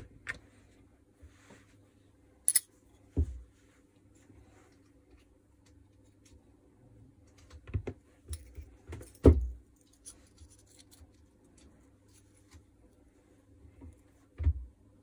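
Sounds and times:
metal parts clicking and scraping: 2.5 - 2.7, 9.8 - 12.3.

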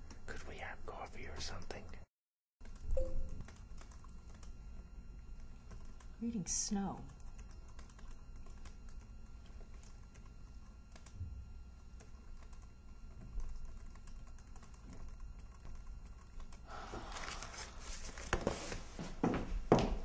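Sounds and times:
laptop keyboard typing: 2.6 - 4.8, 5.4 - 6.2, 7.0 - 11.2, 11.8 - 17.4.

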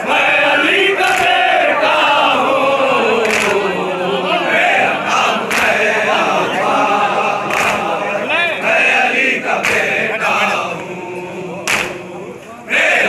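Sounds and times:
men chanting in unison: 0.0 - 13.0
group chest-beating strikes: 1.0 - 1.6, 5.4 - 6.0, 7.4 - 8.0, 9.5 - 10.4, 11.6 - 12.2.

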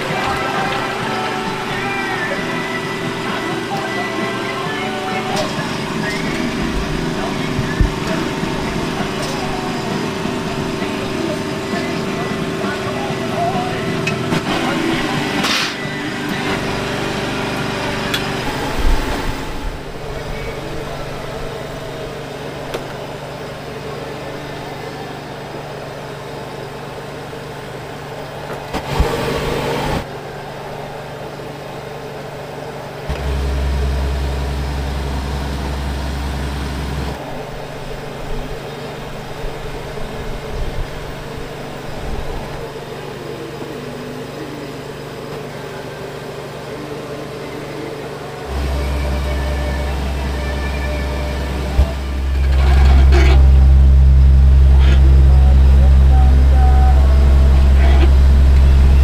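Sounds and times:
deep motor drone: 0.0 - 22.6, 33.1 - 37.2, 48.5 - 59.0
noisy burst: 0.0 - 43.4, 46.8 - 59.0
steady mechanical hum: 0.0 - 59.0.

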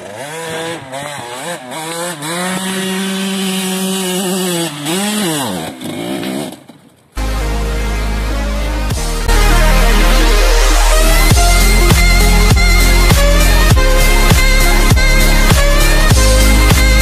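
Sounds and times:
dirt bike engine revving: 0.0 - 17.0
music with heavy bass: 7.2 - 17.0.

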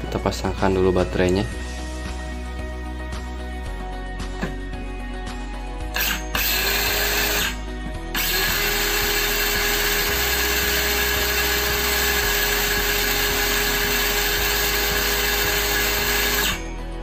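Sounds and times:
circular saw spinning: 6.0 - 16.7.

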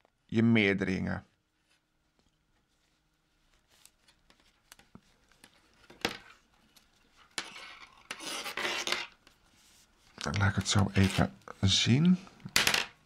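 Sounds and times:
knitting needles scraping: 1.7 - 11.6.

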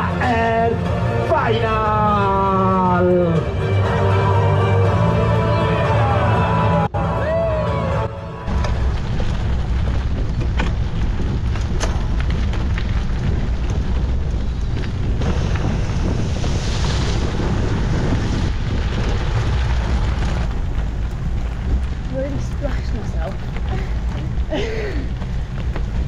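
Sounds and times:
bike tyres rolling on gravel: 8.5 - 26.0
stones and bike parts clicking: 8.5 - 26.0
wind buffeting microphone: 8.5 - 26.0.

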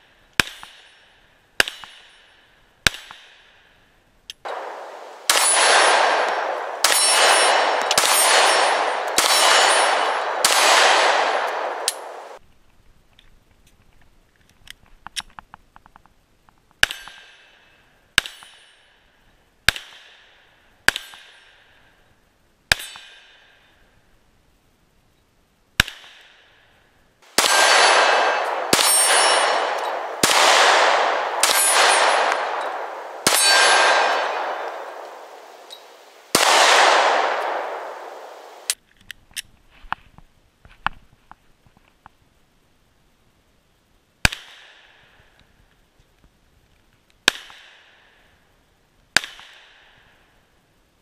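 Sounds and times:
pistol shots: 4.5 - 12.4, 27.2 - 38.8
steel target ringing clang: 4.5 - 12.4, 27.4 - 38.4.

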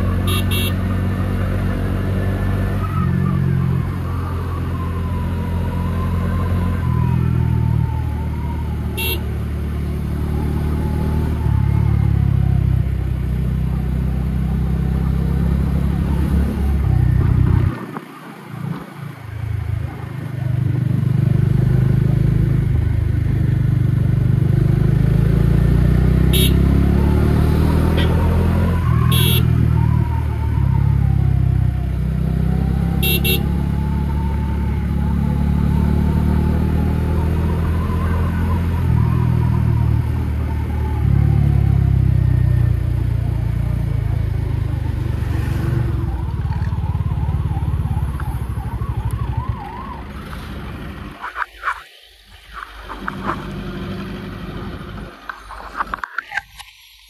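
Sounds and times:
motorcycle engine running: 0.0 - 2.2, 13.1 - 27.2.

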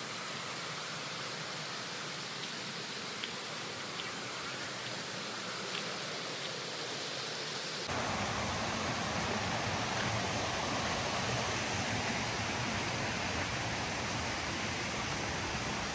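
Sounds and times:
waterfall rushing: 0.0 - 15.9
faint ticks: 2.4 - 6.6.

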